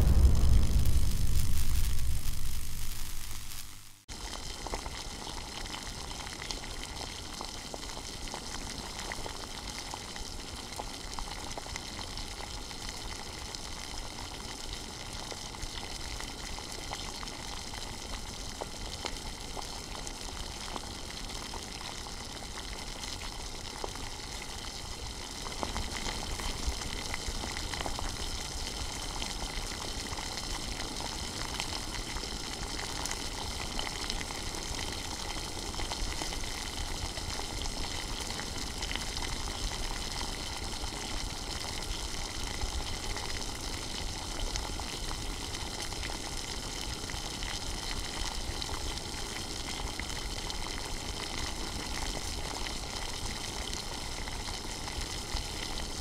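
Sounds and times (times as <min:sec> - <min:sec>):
water boiling in saucepan: 0:00.0 - 0:56.0.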